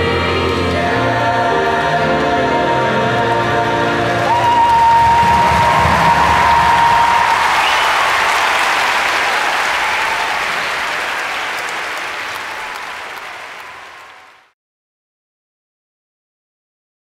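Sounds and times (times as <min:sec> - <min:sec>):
audience applauding: 0:03.9 - 0:14.5.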